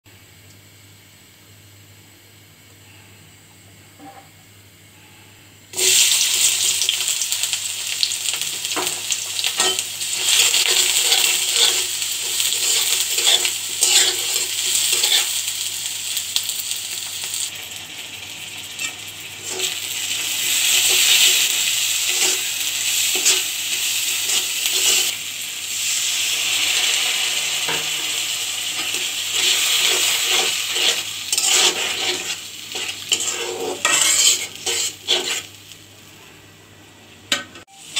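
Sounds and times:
onions sizzling in oil: 5.7 - 36.3
spatula stirring and clicking on pan: 29.8 - 35.6.

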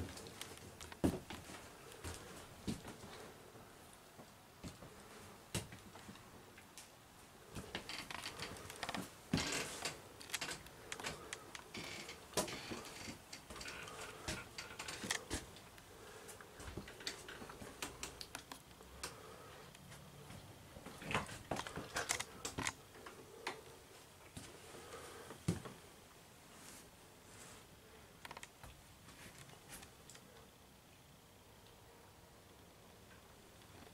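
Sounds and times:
footsteps on trailer floor: 1.0 - 3.0.

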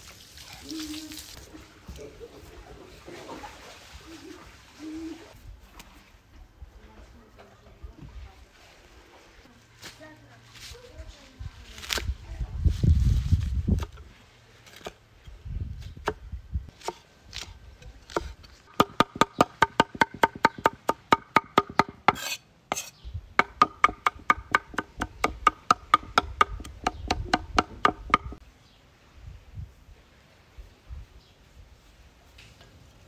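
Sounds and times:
cleaver chopping on wooden board: 18.1 - 22.3, 23.4 - 28.4.

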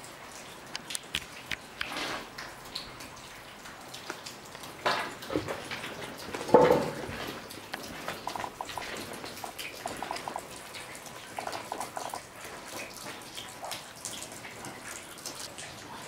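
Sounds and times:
water dripping: 0.0 - 16.0
pitched plinks of drips: 7.7 - 12.9.

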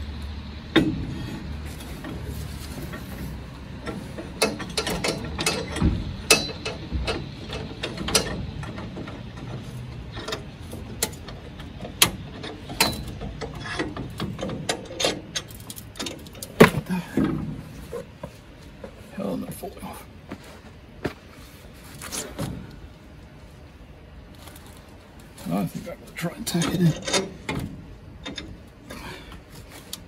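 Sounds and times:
metal clamp clicking and knocking: 3.8 - 16.6, 26.5 - 28.5.

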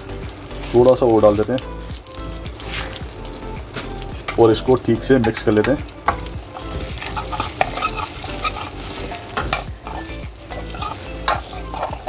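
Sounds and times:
potatoes sizzling in hot oil: 0.0 - 12.0
metal spoon scraping and knocking pan: 5.2 - 12.0.

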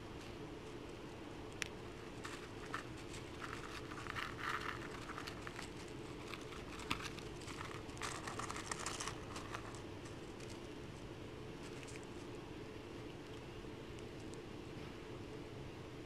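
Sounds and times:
squirrel cracking seeds: 1.4 - 14.6.

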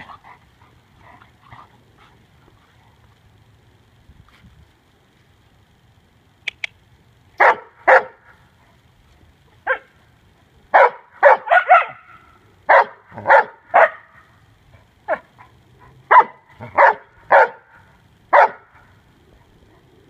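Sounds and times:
dog barking: 7.4 - 8.2, 10.8 - 14.1, 16.1 - 17.7, 18.3 - 18.8.

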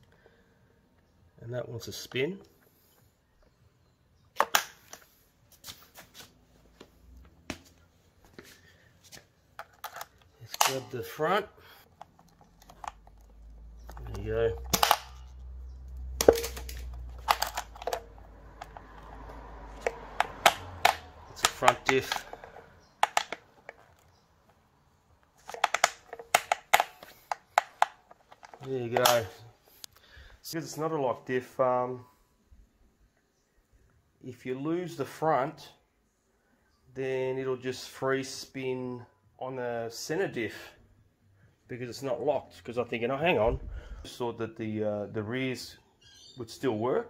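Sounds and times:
clicks and knocks of toy parts: 9.5 - 11.2, 11.8 - 24.6, 25.2 - 30.0.

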